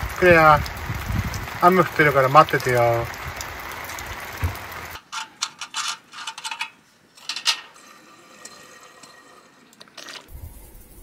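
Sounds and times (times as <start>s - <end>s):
rain hiss: 0.0s - 5.0s, 10.2s - 11.0s
small objects clicking and knocking: 8.4s - 10.4s.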